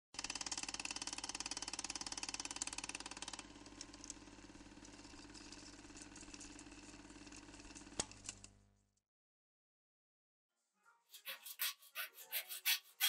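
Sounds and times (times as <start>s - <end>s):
film projector clatter: 0.2s - 8.5s.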